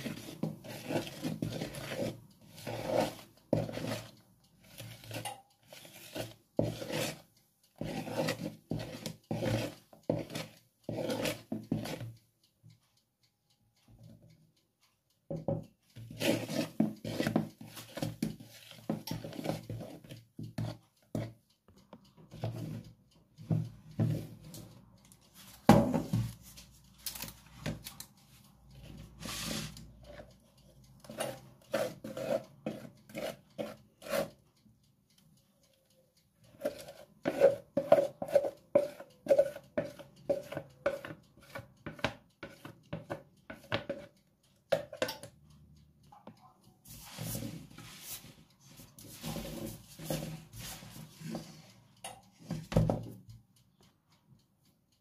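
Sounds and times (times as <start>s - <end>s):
spoon stirring in plastic bowl: 0.0s - 12.1s, 15.5s - 21.4s, 22.3s - 22.8s, 23.4s - 24.6s, 31.0s - 34.4s, 36.5s - 45.3s, 46.9s - 52.9s.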